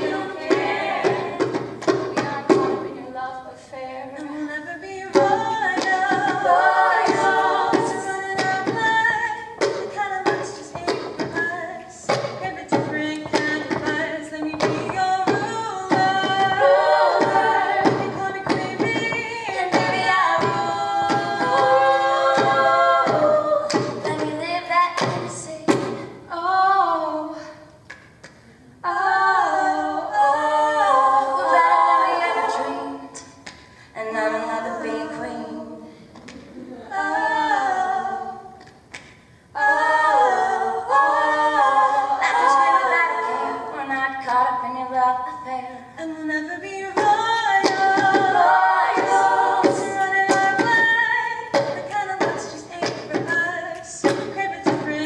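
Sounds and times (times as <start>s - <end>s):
percussive beat: 0.0s - 3.1s, 5.0s - 26.3s, 46.5s - 55.0s
women singing a cappella: 0.0s - 55.0s.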